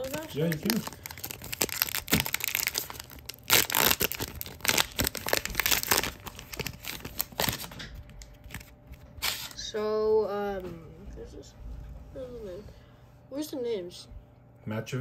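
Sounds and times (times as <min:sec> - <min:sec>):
foil wrapper crinkling and tearing: 0:00.0 - 0:09.6.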